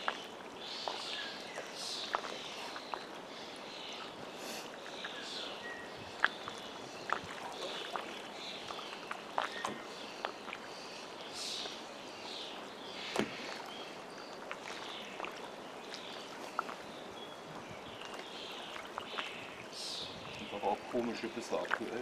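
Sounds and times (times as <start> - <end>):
little clicks and splashes: 0.0 - 3.2, 6.2 - 10.7, 13.0 - 22.0
birds calling: 0.0 - 22.0
small waves lapping against a boat: 0.0 - 22.0.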